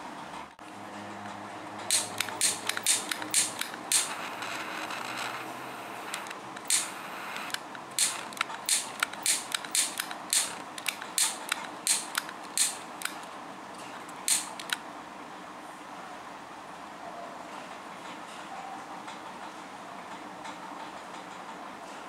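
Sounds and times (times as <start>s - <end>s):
sharp clicks and crackles: 1.2s - 14.8s
faint steady hiss: 1.9s - 17.0s.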